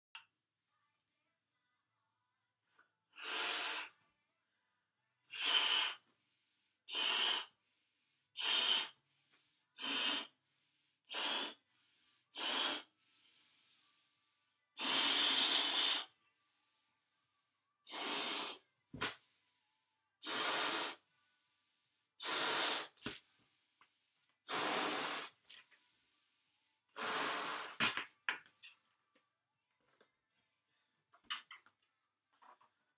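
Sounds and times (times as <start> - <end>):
breath puffs into balloon: 3.1 - 4.0, 5.3 - 6.1, 6.9 - 7.6, 8.3 - 9.0, 9.7 - 10.4, 11.0 - 13.6, 14.8 - 16.1, 17.9 - 19.3, 20.2 - 21.1, 22.2 - 23.4, 24.4 - 25.9, 26.9 - 28.0.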